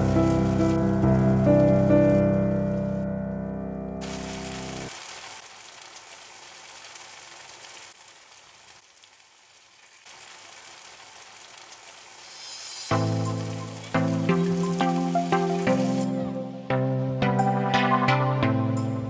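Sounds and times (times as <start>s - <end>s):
chicken deep-frying in oil: 0.0s - 2.6s, 4.0s - 16.0s
background music: 0.0s - 4.9s, 12.9s - 19.0s.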